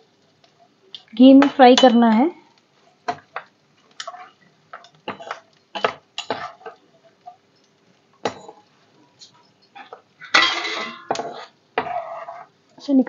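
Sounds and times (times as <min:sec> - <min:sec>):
frying in oil: 0:00.0 - 0:13.0
metal skimmer scraping a pan: 0:04.0 - 0:04.4, 0:09.8 - 0:12.6.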